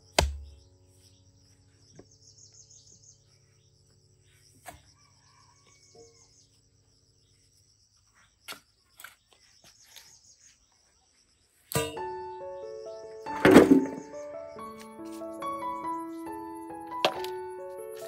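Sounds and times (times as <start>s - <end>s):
digging tool striking clay: 0.0s - 0.6s, 11.7s - 12.1s, 13.4s - 14.1s
insects chirring: 0.0s - 18.0s.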